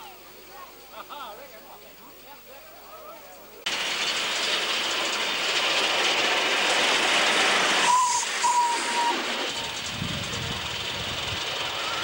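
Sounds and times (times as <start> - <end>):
steam hissing: 3.7 - 12.0
short high steam whistle: 7.6 - 9.8.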